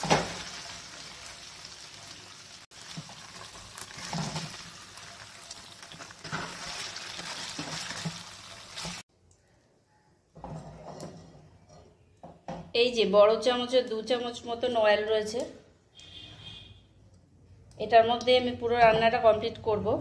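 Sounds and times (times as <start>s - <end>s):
food sizzling in hot oil: 0.0s - 9.1s
spatula scraping pan: 6.0s - 9.0s.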